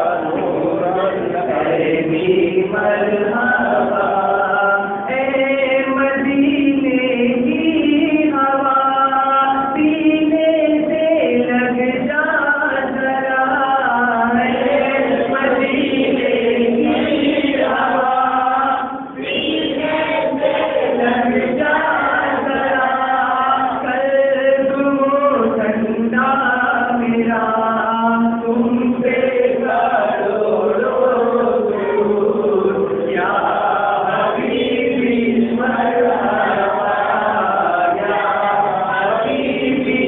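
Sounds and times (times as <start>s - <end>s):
men chanting unaccompanied: 0.0s - 7.8s, 12.8s - 27.0s, 27.6s - 40.0s
lead reciter on a microphone: 0.0s - 40.0s.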